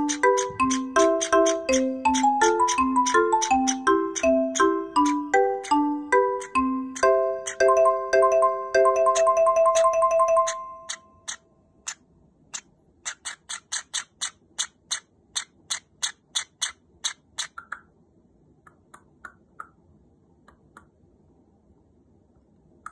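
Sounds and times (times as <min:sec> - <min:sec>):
bird chick chirping: 0:00.0 - 0:07.8, 0:08.9 - 0:17.9.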